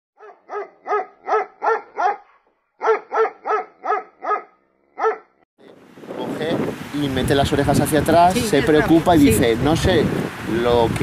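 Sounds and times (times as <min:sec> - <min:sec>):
dog barking: 0:00.2 - 0:05.4.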